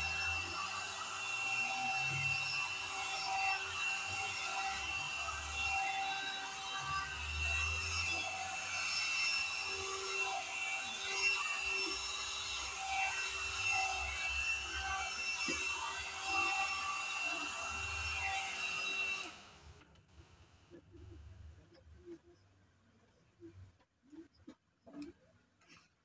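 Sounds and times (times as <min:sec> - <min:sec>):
hot-air brush motor whining: 0:00.0 - 0:19.8.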